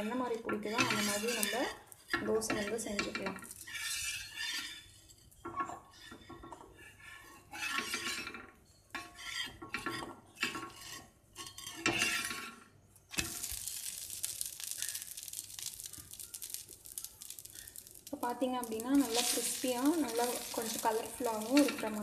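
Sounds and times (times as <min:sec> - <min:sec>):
batter sizzling on griddle: 0:00.0 - 0:22.0
metal utensils clinking: 0:13.1 - 0:22.0.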